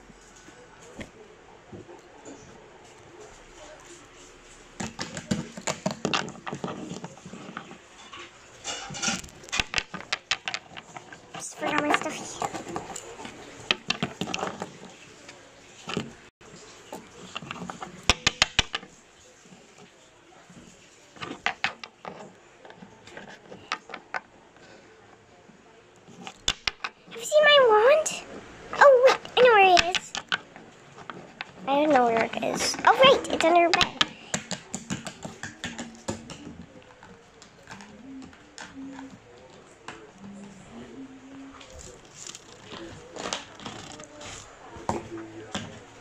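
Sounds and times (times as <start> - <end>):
toys clicking and tapping on table: 9.1 - 13.0, 17.4 - 18.9, 26.2 - 27.0, 29.1 - 31.6, 32.2 - 36.6
rustling: 28.1 - 46.0.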